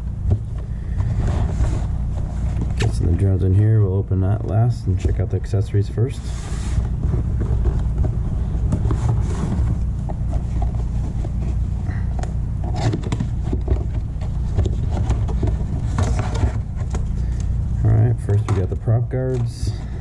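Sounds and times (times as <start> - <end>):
steady low rumble: 0.0 - 20.0
rustling: 0.3 - 3.2, 6.2 - 17.6.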